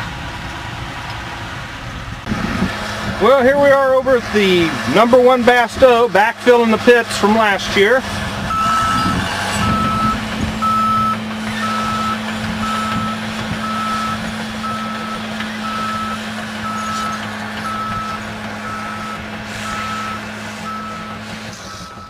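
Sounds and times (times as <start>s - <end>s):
diesel engine running: 0.0s - 22.0s
reverse alarm beeping: 8.5s - 22.0s.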